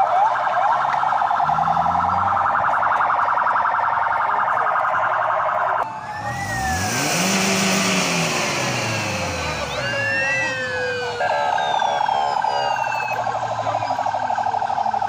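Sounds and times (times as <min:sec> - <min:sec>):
siren tones sliding up and down: 0:00.0 - 0:03.9, 0:04.8 - 0:15.0
siren pulsing electronic warble: 0:00.0 - 0:15.0.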